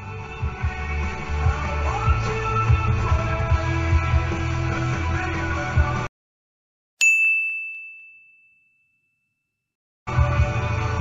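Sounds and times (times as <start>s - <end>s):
background music with steady beat: 0.0s - 6.1s, 10.1s - 11.0s
bright ding sound effect: 7.0s - 9.1s.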